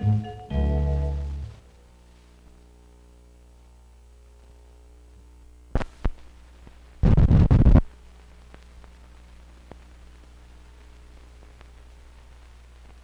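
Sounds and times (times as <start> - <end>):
low film soundtrack hum: 0.0 - 7.0
sharp pops: 5.8 - 6.3, 7.0 - 7.9
rough crackling burst: 5.8 - 13.0.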